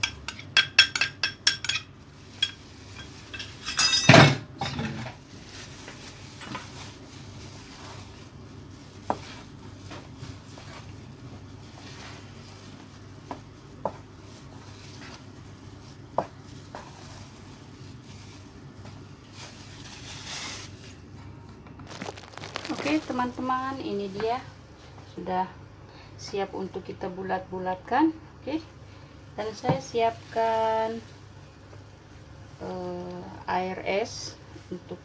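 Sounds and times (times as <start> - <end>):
hand kneading paste squishing: 21.7 - 23.6.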